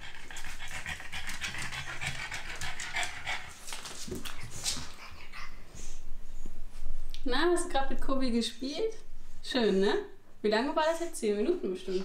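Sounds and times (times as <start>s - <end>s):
dog panting rapidly: 0.0s - 6.0s.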